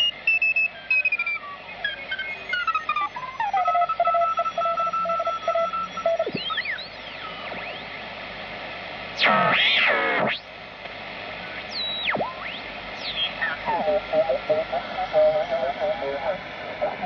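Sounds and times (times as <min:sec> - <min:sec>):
keyed radio tone: 0:00.0 - 0:07.9, 0:09.2 - 0:10.4, 0:11.4 - 0:17.0
radio whistle tones sliding: 0:00.0 - 0:08.0, 0:09.2 - 0:10.4, 0:11.4 - 0:14.3
radio static hiss: 0:00.0 - 0:17.0
loud warbling radio signal: 0:09.2 - 0:10.5, 0:11.4 - 0:17.0.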